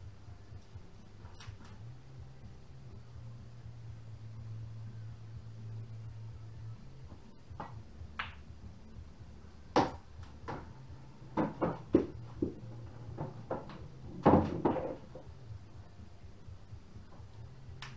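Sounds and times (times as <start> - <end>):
knocks and thumps on wooden floor: 9.8 - 10.7, 11.3 - 15.3.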